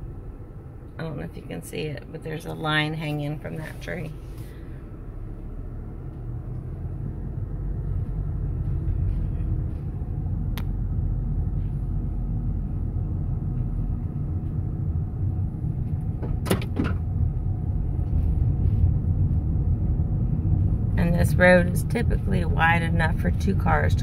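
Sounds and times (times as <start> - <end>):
car cabin road rumble: 0.0 - 24.0.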